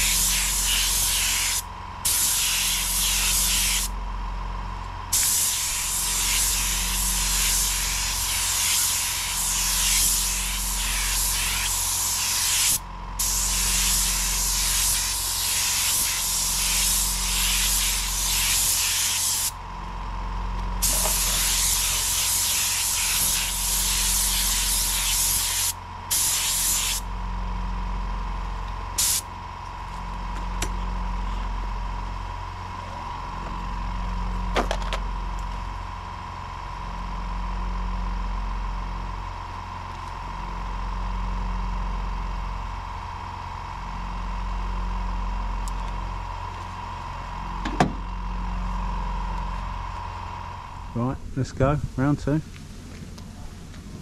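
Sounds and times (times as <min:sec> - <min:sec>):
paint spray gun hissing: 0:00.0 - 0:04.0, 0:05.1 - 0:19.6, 0:20.8 - 0:27.1, 0:29.0 - 0:29.3
low machine hum: 0:00.0 - 0:54.0.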